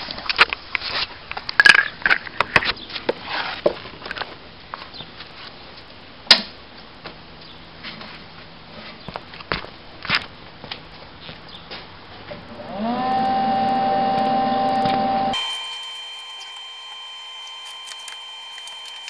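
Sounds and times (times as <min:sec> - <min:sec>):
faint steady hum: 0:12.5 - 0:19.0.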